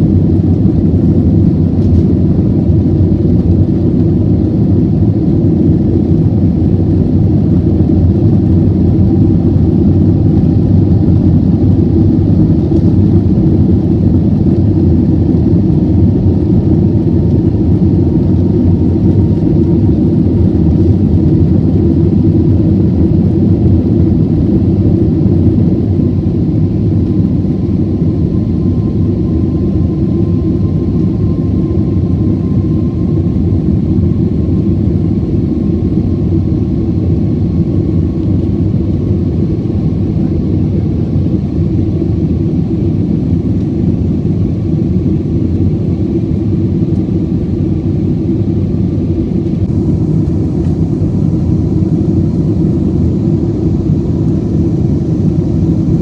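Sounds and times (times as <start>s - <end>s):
engine and airflow rumble: 0.0s - 56.0s.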